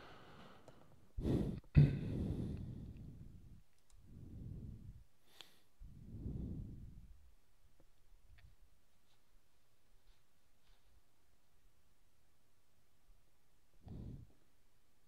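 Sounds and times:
breath exhalations on microphone: 1.2s - 7.1s, 13.8s - 14.4s.

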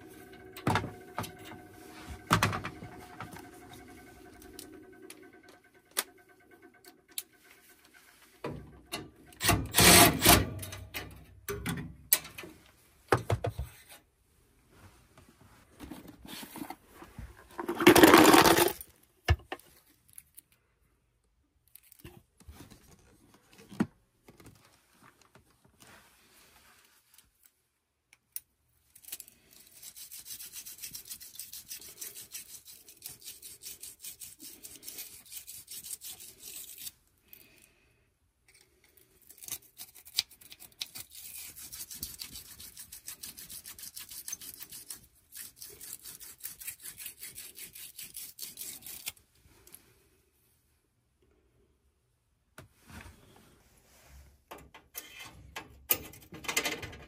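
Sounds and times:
rapid scrubbing strokes on metal rod: 29.6s - 37.0s, 41.0s - 49.1s.

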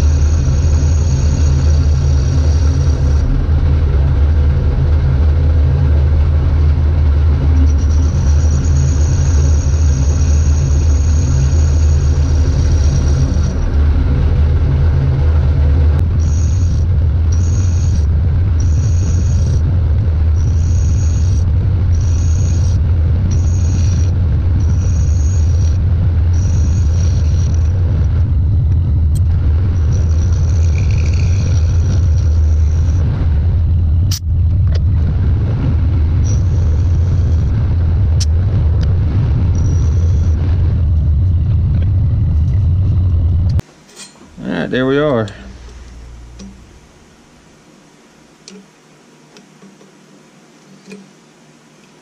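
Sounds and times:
high-pitched cutting hiss: 0.0s - 3.3s, 7.6s - 13.8s, 16.1s - 19.7s, 20.3s - 28.1s, 29.7s - 33.1s, 36.2s - 37.6s
lathe low hum: 0.0s - 52.0s.

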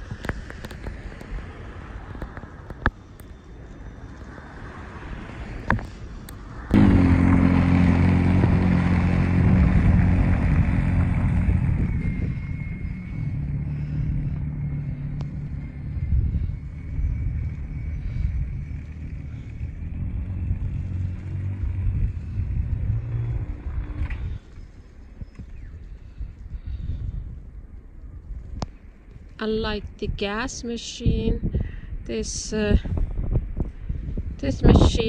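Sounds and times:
wind on microphone: 4.2s - 35.0s
electric snow blower motor hum: 6.7s - 24.5s.

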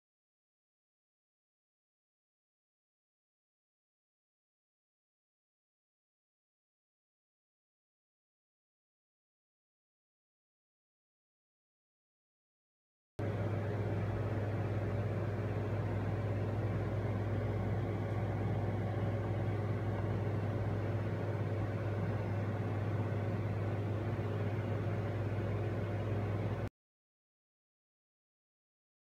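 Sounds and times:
low mechanical hum: 13.2s - 26.7s.

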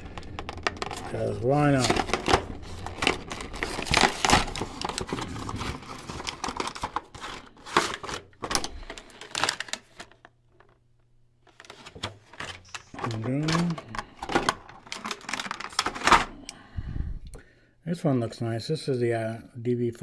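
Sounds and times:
plastic blister tray crinkling: 0.0s - 10.8s, 11.4s - 16.4s
cardboard flap tearing: 1.7s - 8.3s.

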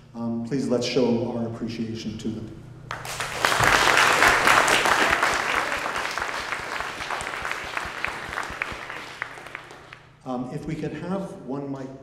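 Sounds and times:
audience applauding: 2.9s - 10.1s.

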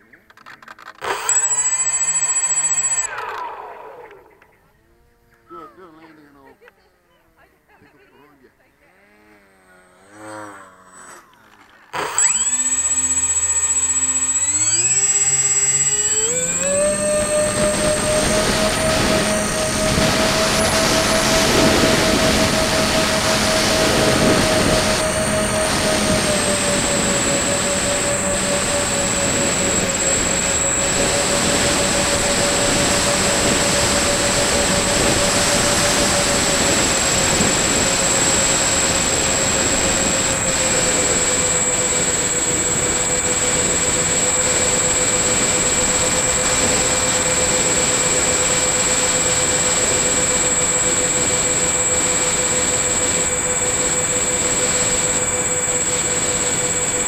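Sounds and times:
electric motor hum and whine: 0.0s - 6.6s, 7.4s - 57.0s
wind rush: 17.2s - 47.3s.

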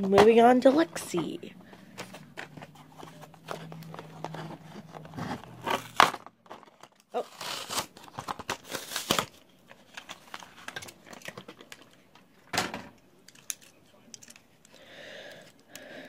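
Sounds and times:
packaging crinkling and rustling: 0.7s - 12.2s.

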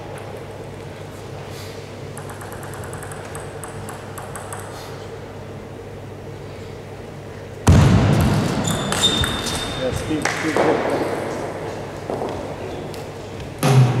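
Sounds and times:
sports hall hum: 0.0s - 14.0s
table tennis ball bouncing: 2.1s - 4.8s, 8.2s - 11.0s.

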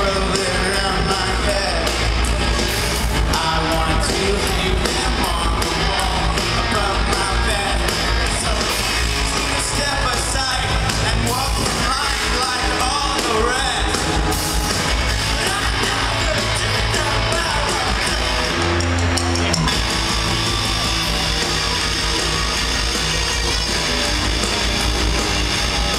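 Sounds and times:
person singing: 0.0s - 2.1s, 3.1s - 14.3s
drums: 0.0s - 25.9s
electric guitars: 0.0s - 25.9s.

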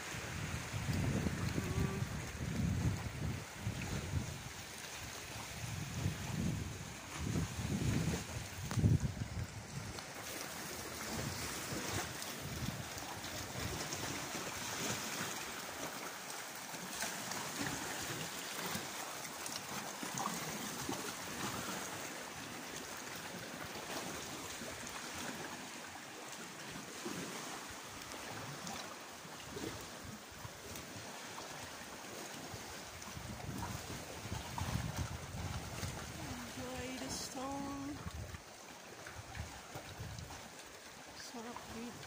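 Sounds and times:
wind gusting on microphone: 0.0s - 10.1s, 10.8s - 14.2s, 33.1s - 38.4s
waves lapping against rocks: 0.0s - 42.0s.

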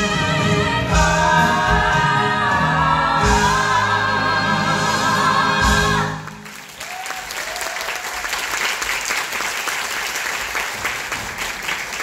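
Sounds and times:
audience applause: 6.3s - 12.0s.

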